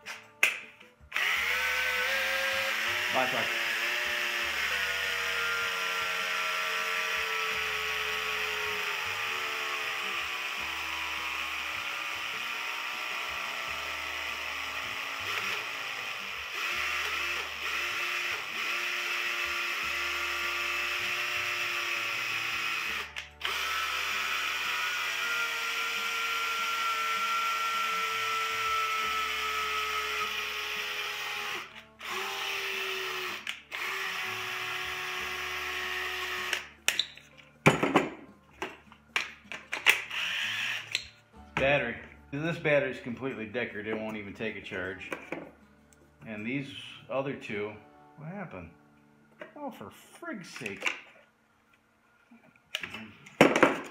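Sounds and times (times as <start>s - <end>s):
cordless drill motor whine: 1.1s - 36.6s, 40.1s - 41.0s.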